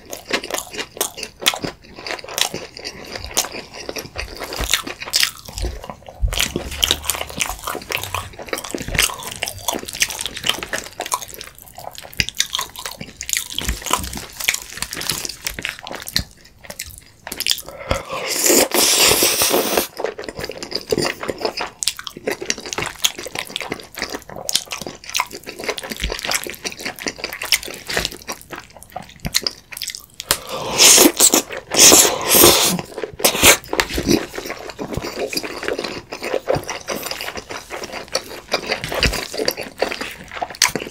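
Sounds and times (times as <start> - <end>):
wet chewing with mouth clicks: 0.0 - 40.9
slurping noodles: 17.6 - 20.0, 30.2 - 38.6.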